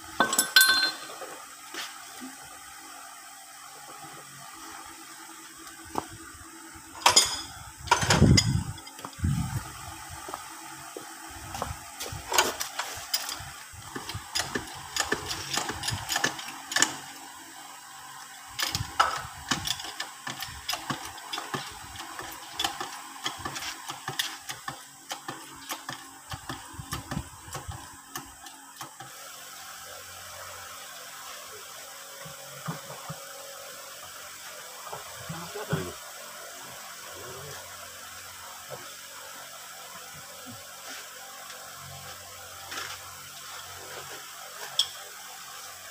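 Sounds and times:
hand tools clinking on steel: 0.2s - 1.2s.

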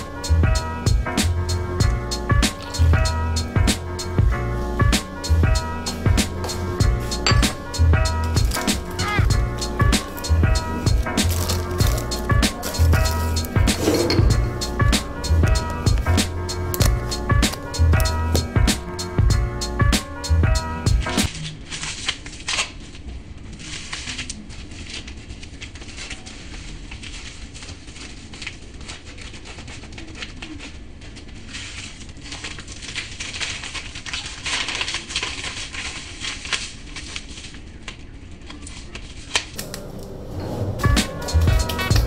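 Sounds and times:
close crackling and clicking: 1.1s - 2.9s, 4.6s - 13.8s, 14.5s - 19.2s, 21.0s - 40.1s
low rumble: 3.4s - 18.6s, 39.6s - 42.0s.

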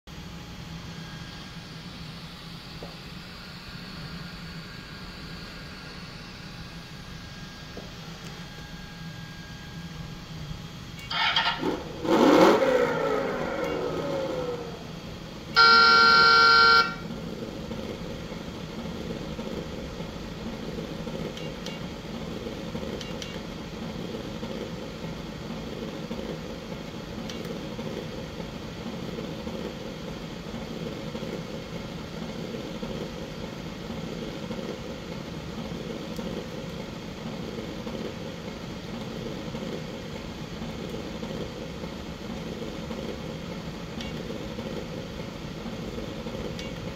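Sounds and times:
simulated horn toot: 11.1s - 14.9s, 15.5s - 17.1s
simulated engine idle hum: 11.1s - 15.6s
simulated engine rev: 11.4s - 15.0s.

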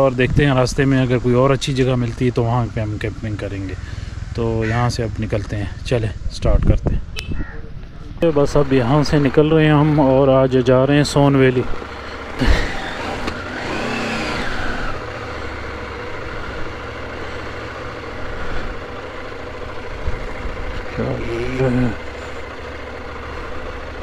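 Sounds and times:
motorcycle engines running: 0.0s - 24.0s
motorcycle engine revving: 8.2s - 24.0s.

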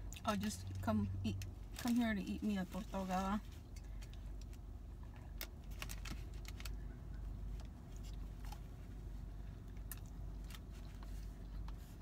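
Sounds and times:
car rumble: 0.0s - 12.0s
aluminium foil crinkling: 5.6s - 6.8s.

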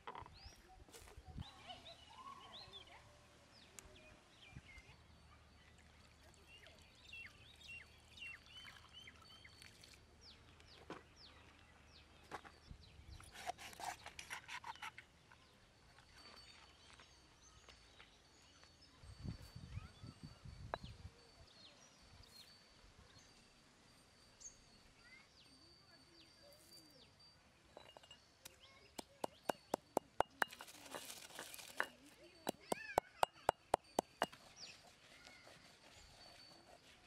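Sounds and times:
handling rustles and clicks: 27.8s - 34.7s.

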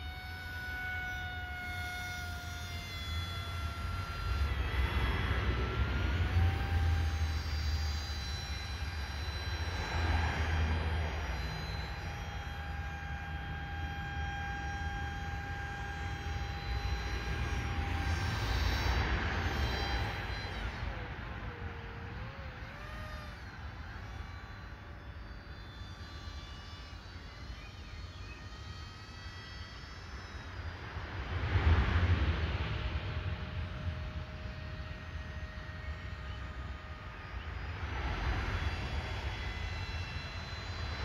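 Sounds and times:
propeller motor whining: 0.0s - 41.0s
wind rumble on microphone: 30.7s - 41.0s.

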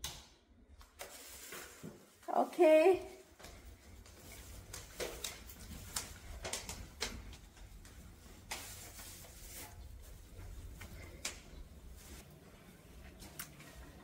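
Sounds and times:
footsteps: 1.1s - 14.0s.

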